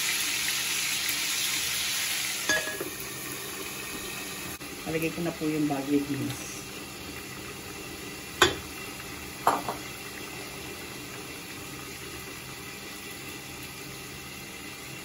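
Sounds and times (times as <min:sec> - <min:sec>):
broth simmering in a pan: 0:00.0 - 0:15.0
knocks against a pan: 0:08.4 - 0:08.6, 0:09.4 - 0:09.9.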